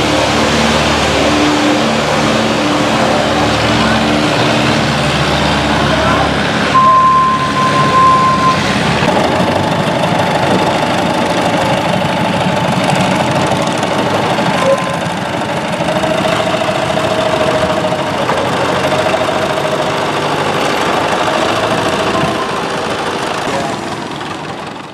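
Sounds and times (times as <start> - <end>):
boat engines running: 0.0 - 24.9
engine whine: 0.0 - 24.9.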